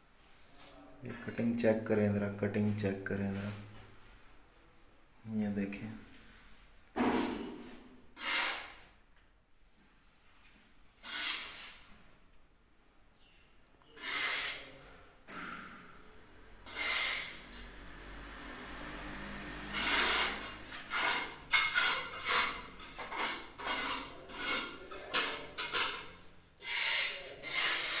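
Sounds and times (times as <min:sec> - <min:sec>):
rubbing scraping strokes: 0:11.0 - 0:11.9, 0:14.0 - 0:14.9, 0:16.7 - 0:17.8, 0:19.6 - 0:26.0, 0:26.6 - 0:28.0.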